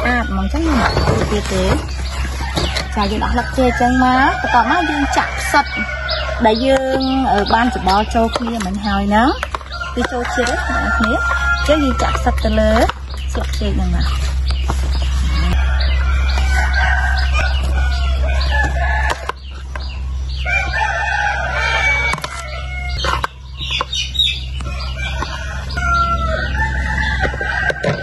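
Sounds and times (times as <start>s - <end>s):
roosters crowing: 0.0s - 28.0s
spoon scraping plastic bowl: 6.9s - 15.2s, 22.1s - 23.9s.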